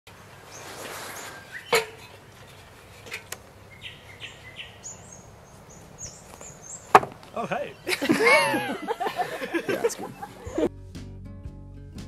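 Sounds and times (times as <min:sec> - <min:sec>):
birds whistling calls: 0:00.3 - 0:02.9, 0:03.6 - 0:10.7
sharp knocks: 0:06.9 - 0:07.3.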